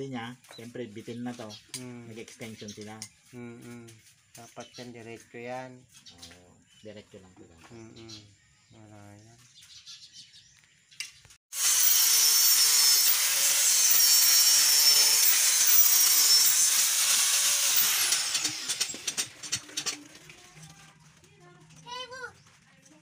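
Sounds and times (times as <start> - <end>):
angle grinder cutting steel: 11.5 - 19.9.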